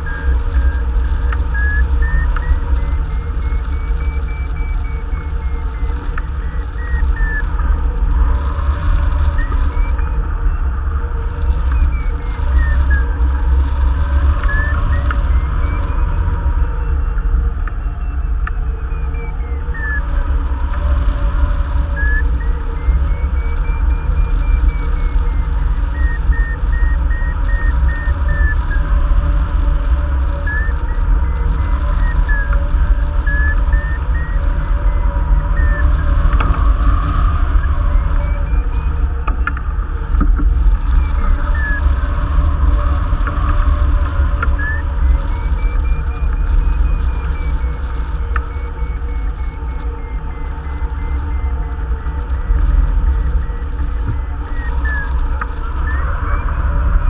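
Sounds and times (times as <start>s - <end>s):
variometer beeping: 0.0s - 56.0s
wind rumble on microphone: 0.0s - 57.0s.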